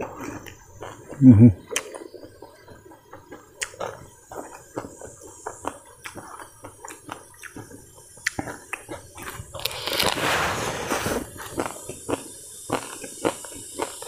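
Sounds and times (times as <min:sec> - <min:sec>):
person chewing crunchy food: 0:00.0 - 0:14.0
wet mouth clicks: 0:00.2 - 0:02.1, 0:03.3 - 0:10.1.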